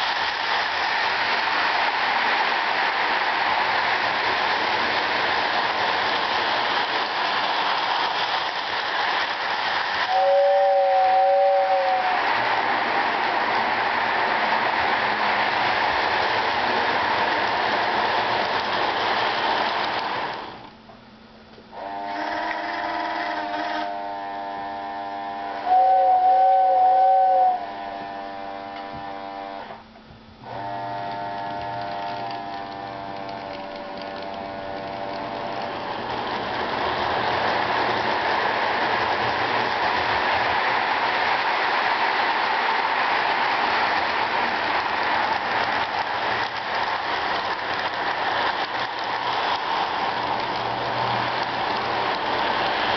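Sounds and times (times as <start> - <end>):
toy steam locomotive hissing: 0.0 - 13.5, 21.8 - 28.1, 30.5 - 52.9
locomotive whistle blasts: 10.1 - 12.3, 21.8 - 29.5.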